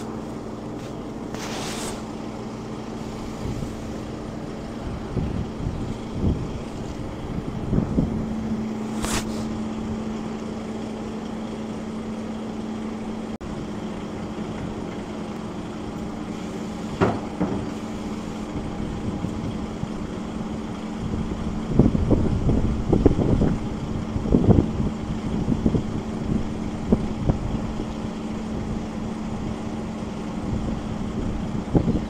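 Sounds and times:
diesel engine idling: 0:00.0 - 0:32.0
short hiss: 0:01.3 - 0:02.1, 0:08.8 - 0:09.6.

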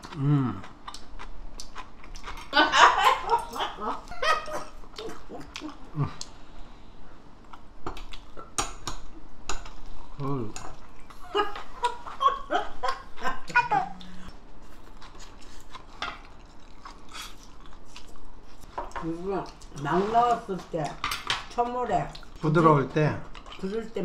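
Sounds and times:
people laughing: 0:02.6 - 0:04.8
people talking: 0:19.0 - 0:21.0, 0:21.6 - 0:24.0.

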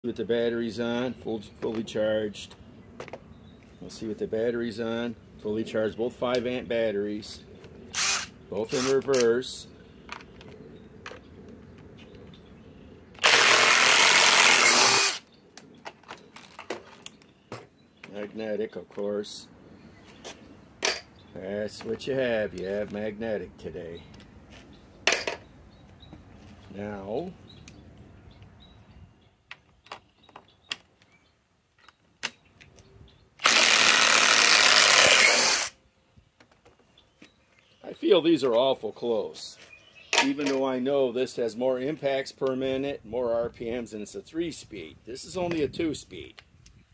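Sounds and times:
impact drivers backing out screws: 0:08.0 - 0:09.3, 0:13.2 - 0:15.2, 0:33.4 - 0:35.7.

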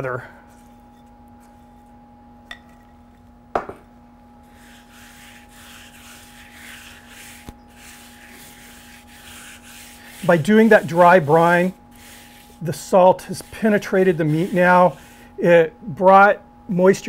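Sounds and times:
hands rubbing paste on meat: 0:04.5 - 0:15.3.

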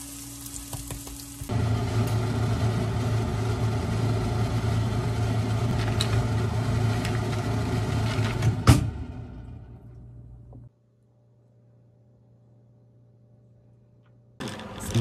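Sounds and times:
appliance motor hum: 0:00.9 - 0:10.7.

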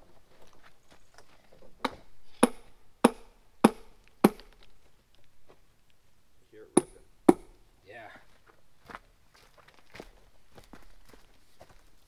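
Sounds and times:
hammer striking steel wedges: 0:01.8 - 0:04.5, 0:06.8 - 0:07.6.

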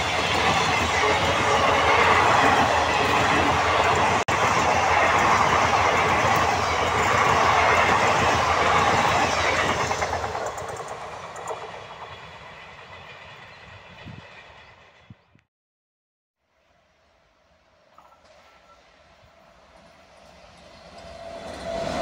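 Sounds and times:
train coaches rushing past: 0:00.0 - 0:15.2, 0:18.0 - 0:22.0.

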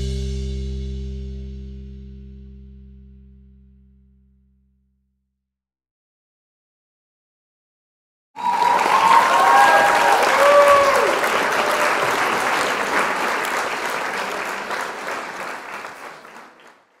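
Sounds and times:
cheering whoops: 0:08.4 - 0:16.4
crowd applauding: 0:08.4 - 0:17.0.

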